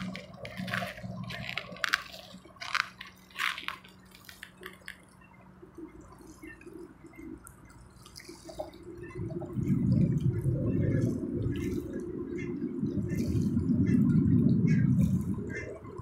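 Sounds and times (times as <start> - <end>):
faint steady hum: 0.0 - 16.0
waves lapping on rocky shore: 0.0 - 16.0
low rushing noise: 8.8 - 15.9.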